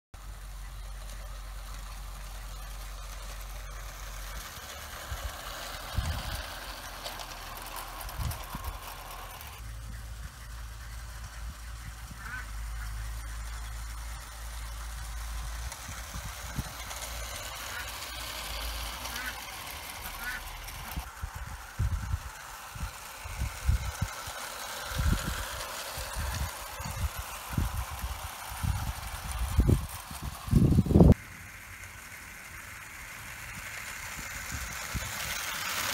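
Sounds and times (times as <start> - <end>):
model train wheels rattling on rails: 0.2 - 35.9.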